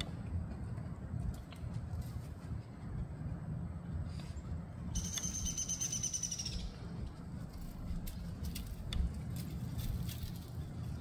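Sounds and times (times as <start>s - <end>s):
bird trill: 4.9s - 6.9s.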